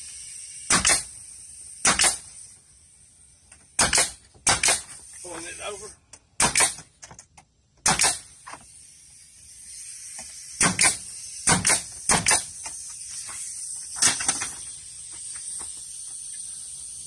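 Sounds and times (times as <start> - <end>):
nail gun firing: 0.6 - 1.1, 1.8 - 2.4, 3.6 - 5.0, 6.4 - 6.9, 7.8 - 8.7, 10.2 - 12.7, 13.9 - 14.6.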